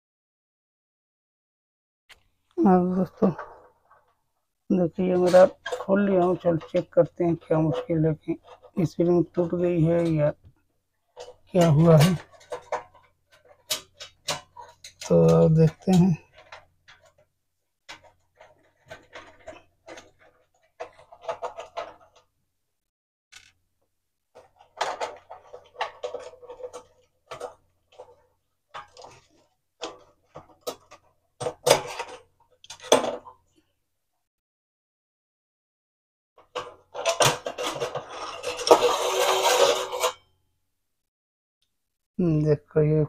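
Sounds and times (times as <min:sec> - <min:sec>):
clicks and metallic scraping: 0:04.9 - 0:22.3, 0:23.4 - 0:23.6, 0:24.3 - 0:33.6, 0:36.4 - 0:40.3.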